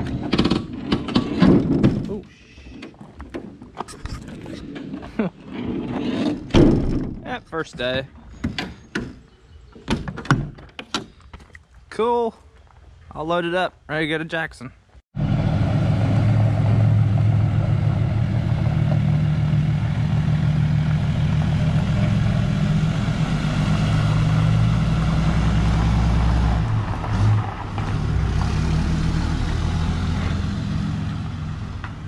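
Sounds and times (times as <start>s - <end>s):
pickup truck engine running: 15.2s - 25.9s.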